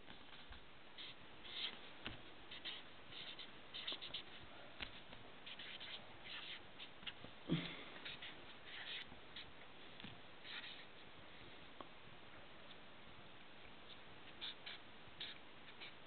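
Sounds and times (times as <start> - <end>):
marker scratching on paper: 0.1 - 1.8, 2.5 - 7.2, 8.0 - 9.5, 10.4 - 10.9, 13.9 - 16.0.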